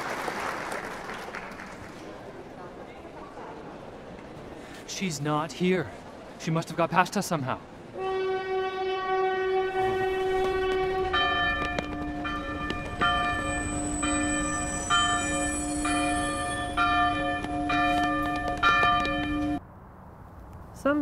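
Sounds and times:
train horn blast: 7.9 - 18.3.

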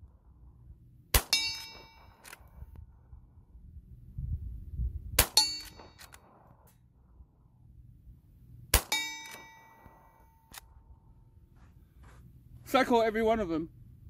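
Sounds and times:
rifle shots: 1.1 - 2.6, 5.2 - 6.7, 8.7 - 10.7
ringing metallic clang: 1.2 - 2.2, 5.2 - 6.4, 8.8 - 10.5.

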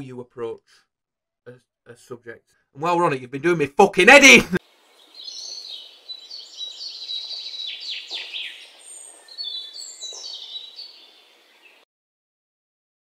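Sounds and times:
birds chirping and singing: 4.8 - 11.8.

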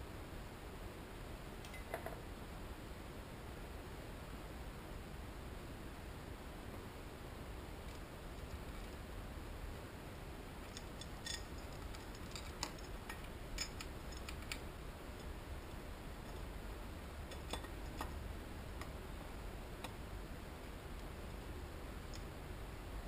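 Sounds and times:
metallic clicks of engine parts: 10.7 - 14.6, 17.3 - 18.2.

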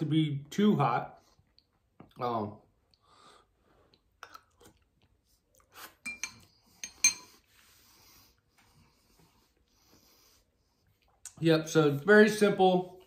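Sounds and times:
soft eating sounds: 1.2 - 11.4
spoon clinking against bowl: 6.0 - 7.4.

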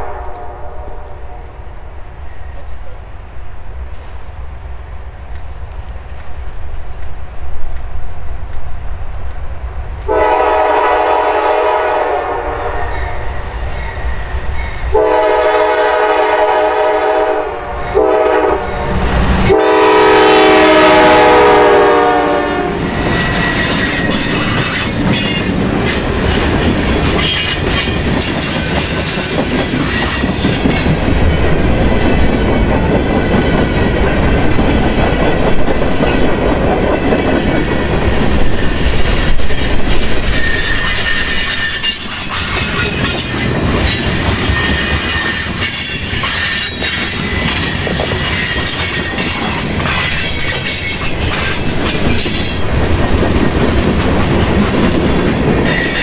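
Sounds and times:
locomotive air horn: 0.0 - 1.5, 10.1 - 13.2, 14.9 - 18.9, 19.5 - 22.9
train wheels clicking over rail joints: 3.8 - 10.3, 12.2 - 15.6, 22.7 - 56.0
high wheel squeals: 22.9 - 26.5, 27.2 - 30.8, 38.1 - 52.7, 55.6 - 56.0.

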